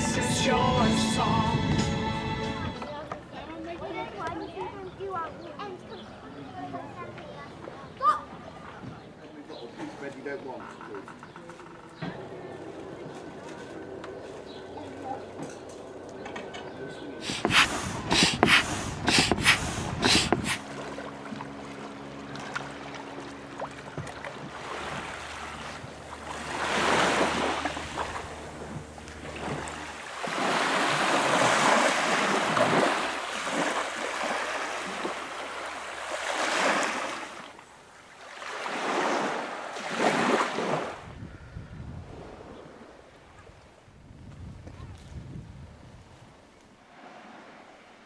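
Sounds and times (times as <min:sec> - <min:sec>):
wind on microphone: 0:00.8 - 0:03.0, 0:17.2 - 0:20.6, 0:40.8 - 0:46.4
steady low hum: 0:12.0 - 0:30.2
small waves washing onto beach: 0:17.2 - 0:28.4, 0:29.0 - 0:41.0.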